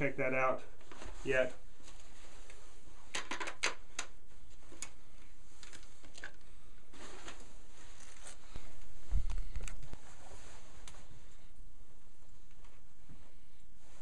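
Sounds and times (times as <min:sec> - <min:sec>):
room noise: 0:00.0 - 0:14.0.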